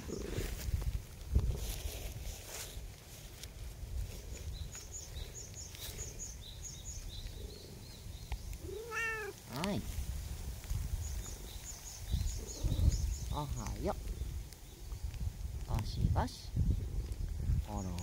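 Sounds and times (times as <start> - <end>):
low wind rumble: 0.0 - 18.0
cat meowing: 8.6 - 9.4.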